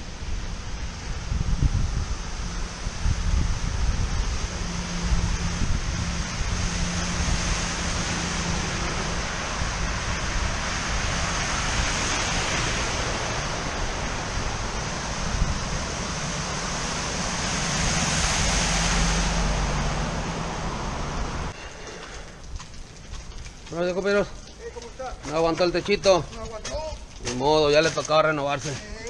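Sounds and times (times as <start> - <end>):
wind blowing across microphone: 0.0 - 21.6
wind rushing: 0.0 - 21.6
storm water rushing: 0.0 - 23.0.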